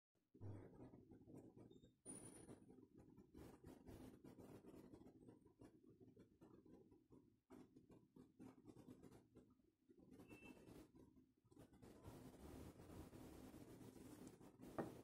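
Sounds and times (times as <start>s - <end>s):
light rubs and taps on resin: 11.6s - 15.0s.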